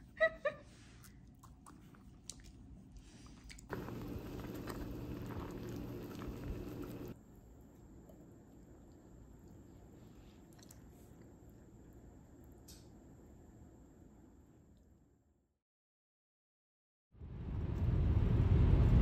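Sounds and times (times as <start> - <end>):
dog chewing: 1.3 - 7.1
ladle stirring: 3.7 - 7.1
soup pot rushing with hum: 3.7 - 7.2.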